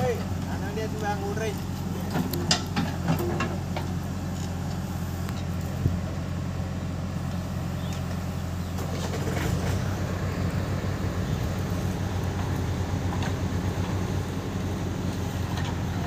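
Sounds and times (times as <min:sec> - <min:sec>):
backhoe loader engine working: 0:00.0 - 0:16.0
tractor engine idling: 0:00.0 - 0:16.0.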